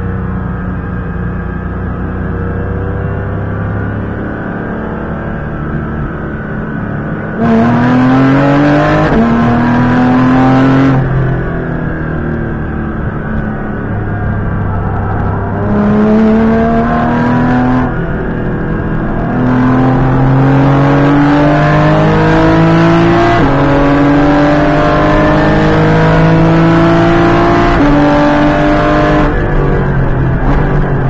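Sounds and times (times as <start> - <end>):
car engine accelerating hard: 1.9 - 31.0.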